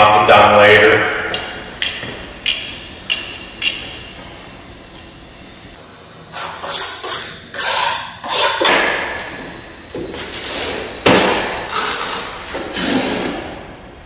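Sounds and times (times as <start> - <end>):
tools scraping on wooden table: 6.3 - 8.7.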